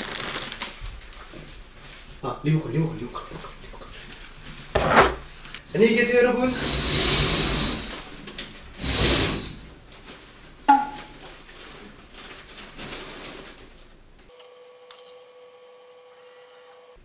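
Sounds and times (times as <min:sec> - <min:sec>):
curtain fabric swishing: 0:06.5 - 0:08.1, 0:08.8 - 0:09.6
electrical hum with tones: 0:14.1 - 0:17.0.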